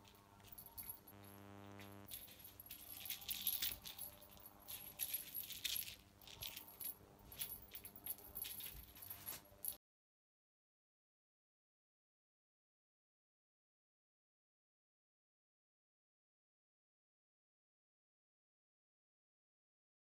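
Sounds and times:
cat toy rattling and jingling: 0:00.0 - 0:01.4, 0:02.0 - 0:09.8
faint steady hum: 0:00.0 - 0:09.8.

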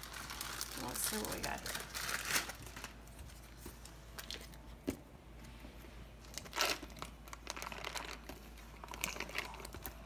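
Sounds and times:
foil wrapper crinkling: 0:00.0 - 0:04.6, 0:06.2 - 0:10.0.

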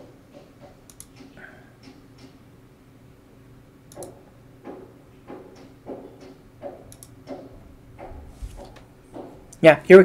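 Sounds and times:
computer mouse clicks: 0:00.8 - 0:02.4, 0:03.9 - 0:04.2, 0:06.9 - 0:07.4.

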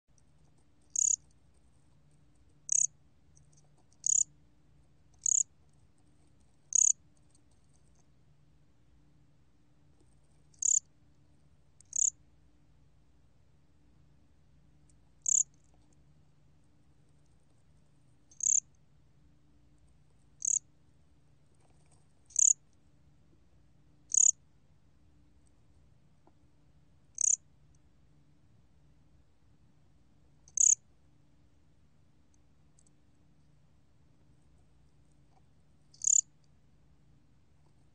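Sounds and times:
cricket chirping: 0:00.9 - 0:01.3, 0:02.7 - 0:04.3, 0:05.2 - 0:05.5, 0:06.7 - 0:07.0, 0:10.5 - 0:10.9, 0:11.8 - 0:12.2, 0:15.2 - 0:15.7, 0:18.3 - 0:18.7, 0:20.4 - 0:20.7, 0:22.3 - 0:22.6, 0:24.1 - 0:24.4, 0:27.2 - 0:27.4, 0:30.4 - 0:30.8, 0:35.9 - 0:36.3.

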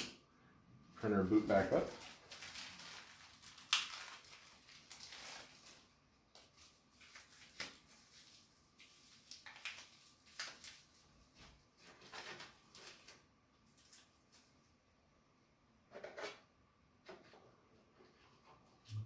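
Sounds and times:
packaging rustling: 0:01.5 - 0:11.1, 0:11.8 - 0:14.5.

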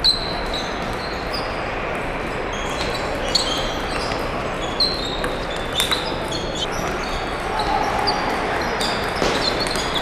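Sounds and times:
hum of large hall: 0:00.0 - 0:10.0
table tennis balls clicking: 0:01.9 - 0:07.5, 0:08.5 - 0:10.0.

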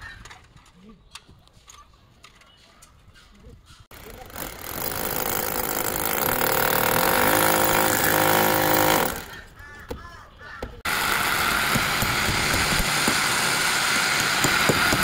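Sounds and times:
electric drill boring into brick: 0:04.0 - 0:09.3, 0:10.9 - 0:15.0.

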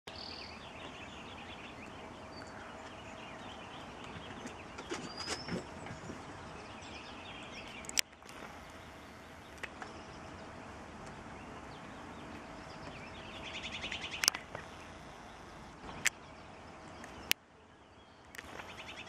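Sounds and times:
birds chirping: 0:00.1 - 0:19.0
steady background hiss: 0:00.1 - 0:19.0
sharp clicks: 0:07.6 - 0:08.8, 0:09.4 - 0:10.0, 0:13.8 - 0:16.2, 0:18.2 - 0:19.0.

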